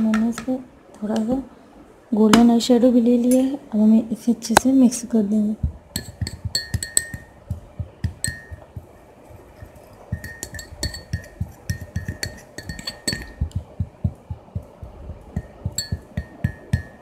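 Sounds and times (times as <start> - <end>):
stirring tool tapping a bowl: 5.6 - 17.0.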